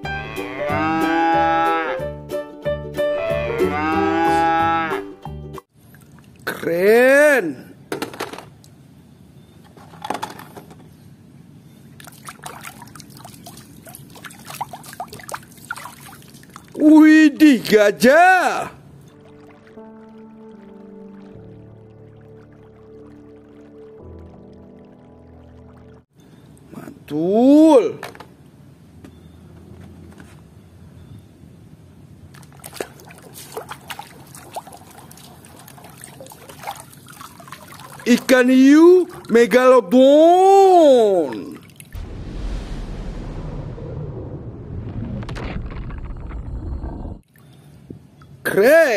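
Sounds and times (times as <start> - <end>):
water sloshing in plastic tub: 12.0 - 16.8, 32.3 - 39.4.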